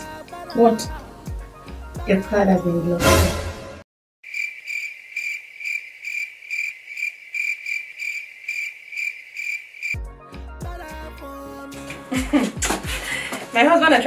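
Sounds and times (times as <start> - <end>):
cricket chirping: 4.2 - 10.0.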